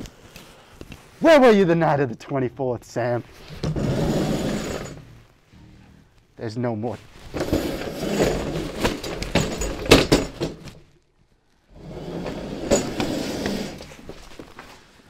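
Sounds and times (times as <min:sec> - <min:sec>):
folding table scraping and knocking: 0:03.4 - 0:05.2, 0:07.3 - 0:10.8, 0:11.8 - 0:14.1.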